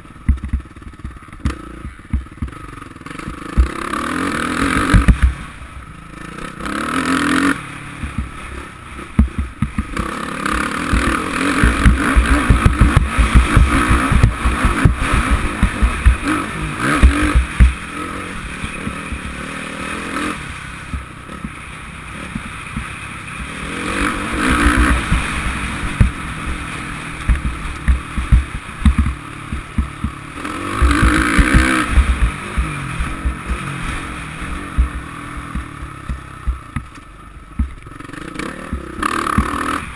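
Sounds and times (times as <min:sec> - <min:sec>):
low thumps from bumps: 0:00.0 - 0:02.6, 0:03.2 - 0:03.8, 0:04.6 - 0:05.4, 0:08.0 - 0:10.0, 0:10.6 - 0:17.9, 0:18.6 - 0:19.4, 0:24.1 - 0:26.6, 0:27.2 - 0:37.9
motocross engine revving: 0:00.0 - 0:39.9.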